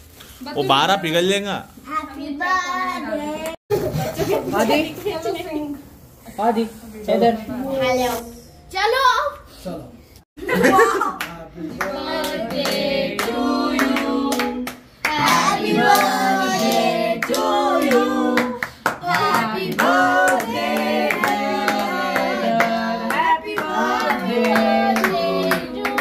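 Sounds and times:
group singing a birthday song: 11.5 - 26.0.

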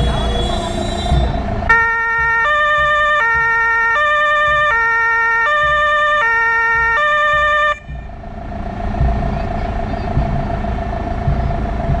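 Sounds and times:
two-tone fire truck siren: 0.0 - 8.2.

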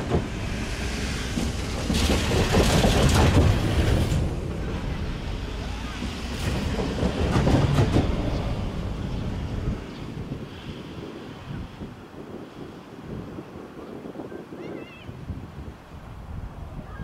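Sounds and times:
train wheels rumbling on rail: 0.0 - 11.6
wind buffeting microphone: 0.0 - 17.0.

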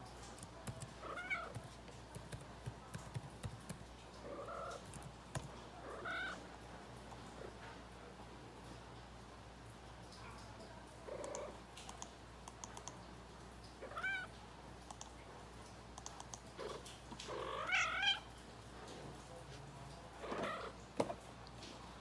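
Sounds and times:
cat meowing: 1.0 - 1.5, 5.8 - 6.4, 13.8 - 14.3, 16.6 - 18.3.

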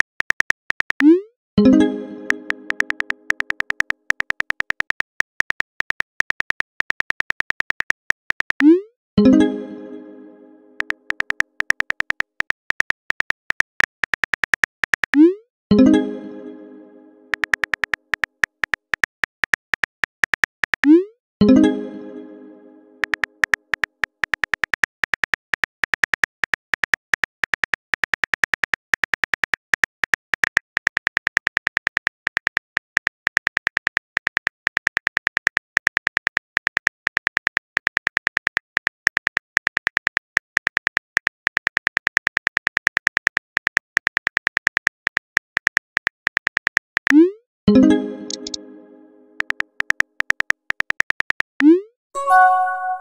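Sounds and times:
phone keyboard clicks: 2.7 - 8.6, 10.8 - 15.1, 17.3 - 20.9, 23.0 - 28.4, 48.3 - 48.6, 49.4 - 51.5
pitched chime: 52.2 - 53.0.

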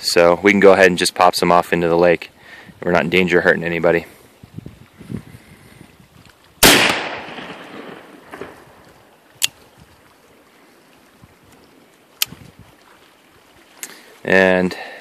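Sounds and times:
revolver gunshot: 6.6 - 8.6.

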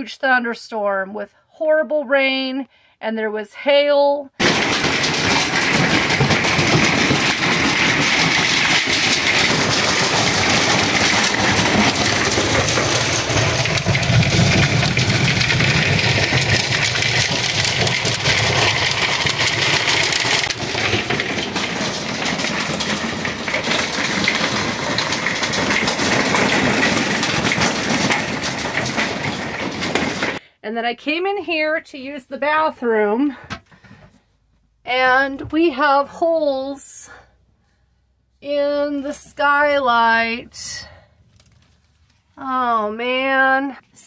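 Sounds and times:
hail and heavy rain on roof: 4.4 - 30.4.

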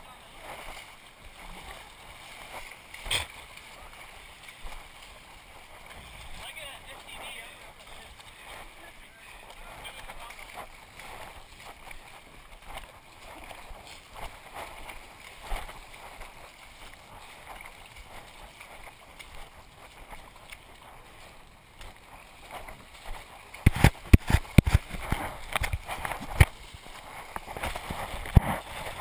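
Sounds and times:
feet splashing through stream: 0.0 - 29.0
loud thumps and splashes: 23.6 - 26.6.

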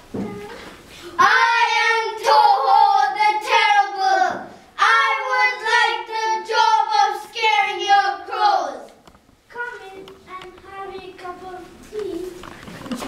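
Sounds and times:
child singing: 1.2 - 8.9.

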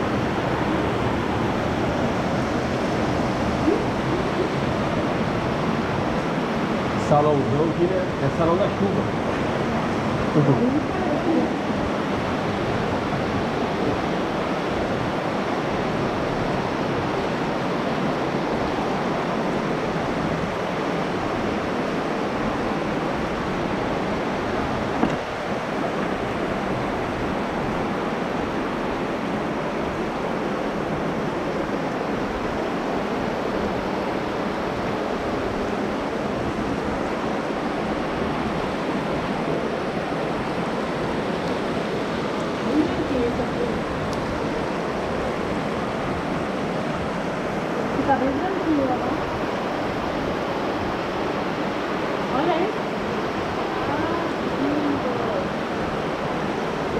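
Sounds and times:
running water rushing: 0.0 - 56.9.

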